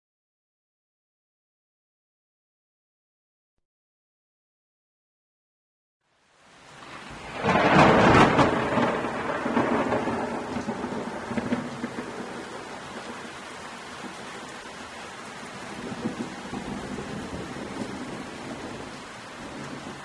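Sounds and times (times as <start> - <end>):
thunder crack and rumble: 6.8 - 13.3, 15.6 - 20.0.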